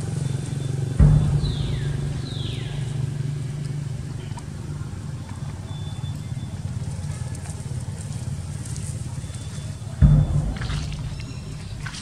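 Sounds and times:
engine humming: 0:00.0 - 0:12.0
high call falling in pitch: 0:01.0 - 0:06.0.

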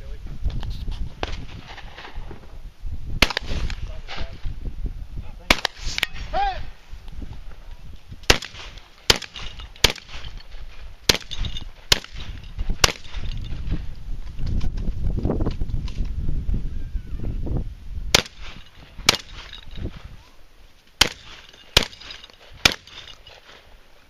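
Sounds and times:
pistol shots: 0:03.2 - 0:03.8, 0:05.5 - 0:06.2, 0:08.3 - 0:10.3, 0:11.1 - 0:13.4, 0:18.1 - 0:19.6, 0:21.0 - 0:23.2
shotgun shots: 0:03.2 - 0:04.3, 0:05.4 - 0:06.2, 0:08.3 - 0:10.4, 0:11.1 - 0:13.4, 0:18.1 - 0:19.6, 0:21.0 - 0:23.6.

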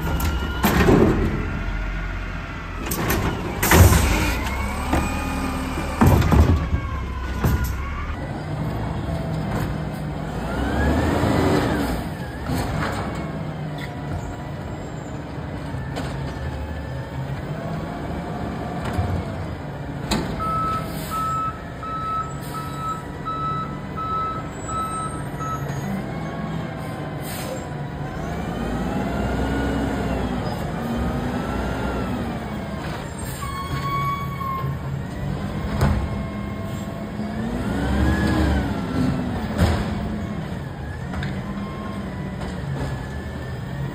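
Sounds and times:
air brake hisses: 0:20.8 - 0:21.4, 0:27.2 - 0:27.6.

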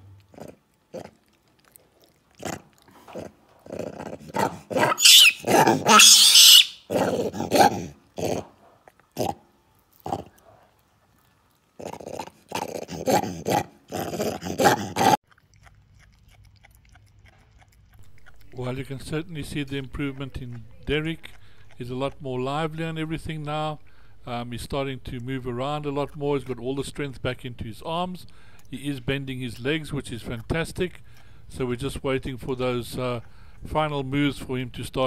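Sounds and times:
monkey chewing carrot: 0:00.0 - 0:08.1, 0:08.8 - 0:35.0.

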